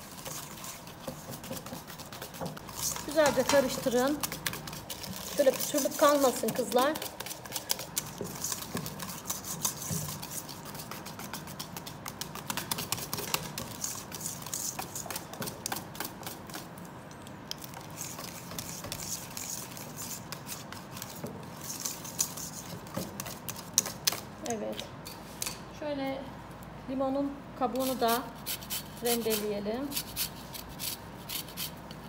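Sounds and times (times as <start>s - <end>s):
whisk scraping metal bowl: 0.0s - 16.6s, 17.7s - 24.2s.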